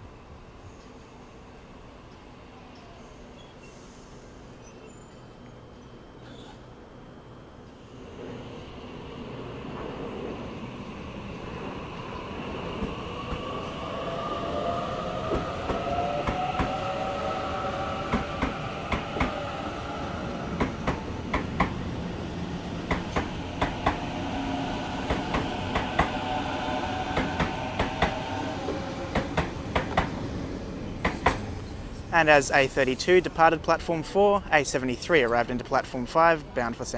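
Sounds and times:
second train arriving: 0.0 - 36.9
train rumble: 6.7 - 36.0
electric train traction whine: 6.8 - 32.1.

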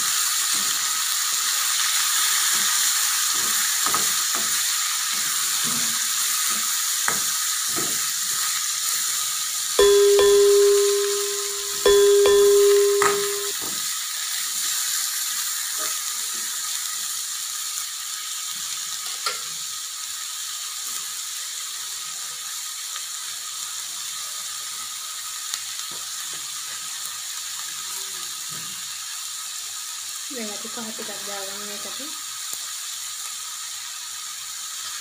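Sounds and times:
vegetables sizzling in oil: 0.0 - 35.0
electronic chime tone: 9.8 - 13.5.

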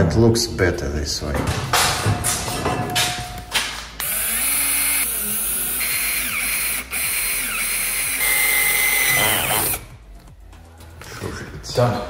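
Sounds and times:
cordless drill boring metal: 4.0 - 9.8.

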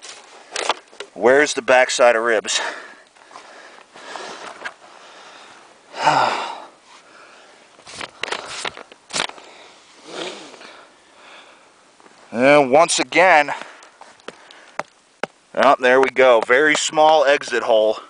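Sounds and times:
loud breathy exhale: 9.4 - 11.6.

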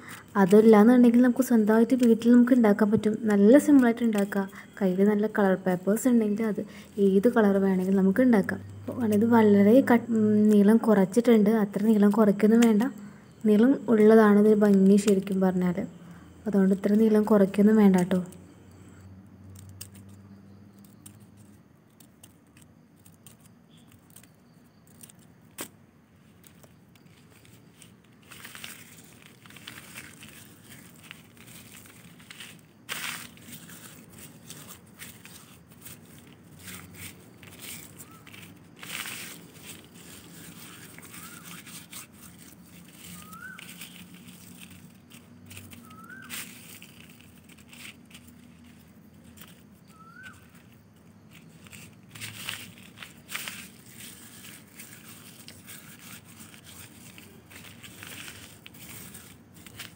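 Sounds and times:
paper crumpling and rustling: 0.0 - 5.3, 6.1 - 10.8, 14.5 - 15.4, 19.6 - 59.9.

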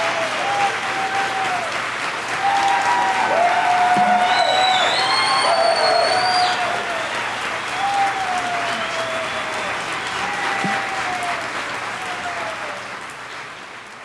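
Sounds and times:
audience applauding: 0.0 - 14.0
long falling whoops: 2.4 - 12.8.

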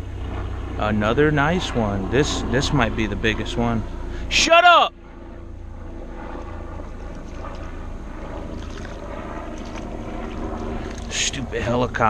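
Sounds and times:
helicopter drone: 0.0 - 12.0
fish splashing at water surface: 8.4 - 11.2.

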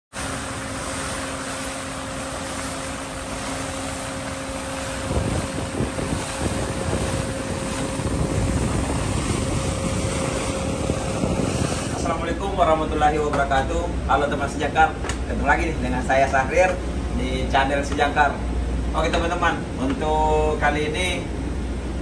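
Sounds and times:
sea water rushing and splashing: 0.1 - 22.0
low rumble: 2.3 - 14.3
wind noise on microphone: 2.8 - 13.1.

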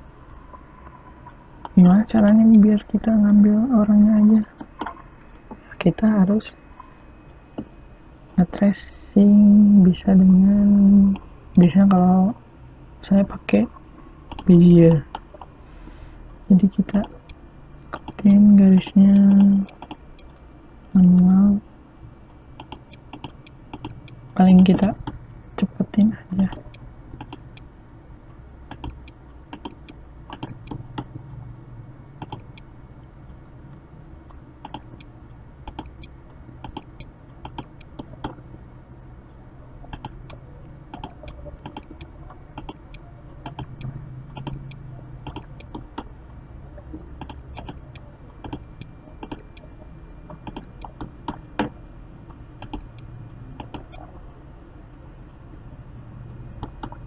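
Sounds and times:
steady low hum: 0.0 - 57.0
mouse and keyboard clicks: 35.7 - 38.4, 39.9 - 46.1, 47.2 - 49.6, 50.3 - 51.4, 53.6 - 54.1, 56.6 - 57.0.

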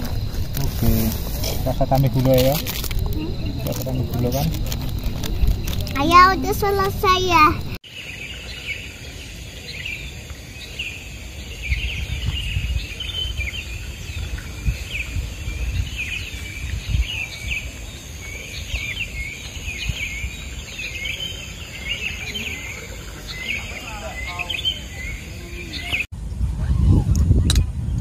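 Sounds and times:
high-pitched insect drone: 0.0 - 7.8
low rumble: 0.0 - 7.8
small birds chirping: 0.0 - 26.1.

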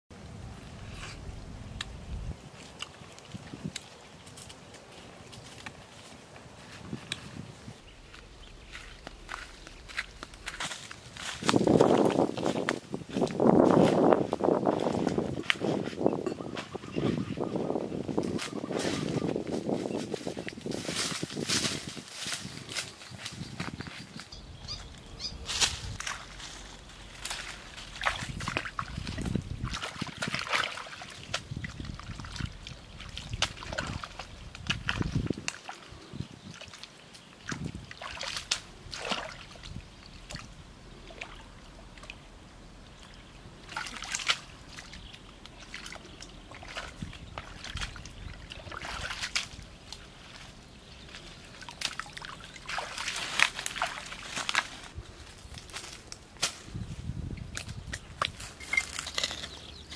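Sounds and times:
water sloshing and trickling: 0.5 - 22.6, 25.5 - 56.0
hands splashing in shallow water: 27.3 - 35.9, 36.5 - 40.5, 43.7 - 50.4, 51.1 - 54.8.

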